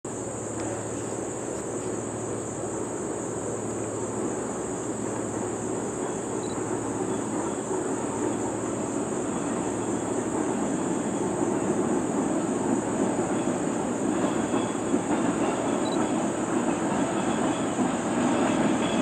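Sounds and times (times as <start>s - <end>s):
train rumble: 0.0s - 19.0s.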